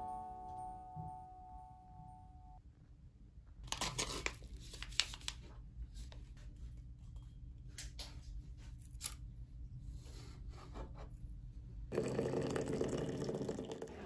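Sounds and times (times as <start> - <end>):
paper packet crinkling: 3.6 - 5.5.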